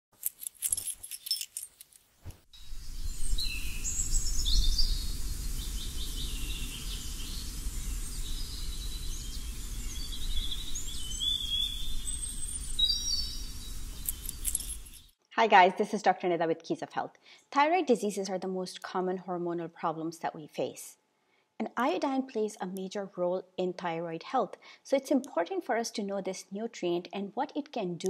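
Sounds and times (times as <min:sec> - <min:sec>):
birds chirping and singing: 0:03.0 - 0:15.0
sharp glassy clicks: 0:14.0 - 0:15.1.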